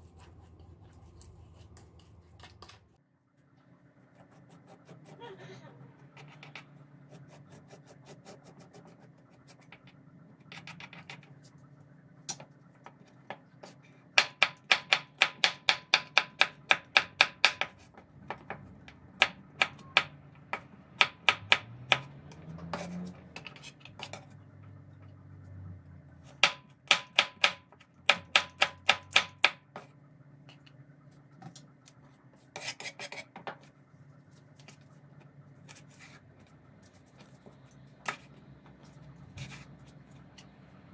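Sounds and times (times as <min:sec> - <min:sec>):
knife chopping on wooden board: 0:14.2 - 0:18.5, 0:26.4 - 0:29.9
spoon scraping cucumber: 0:32.4 - 0:33.3.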